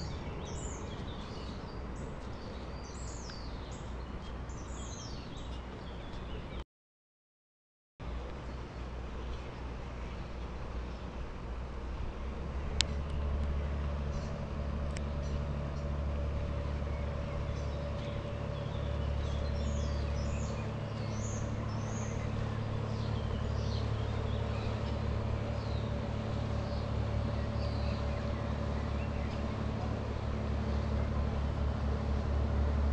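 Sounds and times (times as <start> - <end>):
birds chirping: 0.0 - 6.6, 12.8 - 32.4
ship engine drone: 8.0 - 32.9.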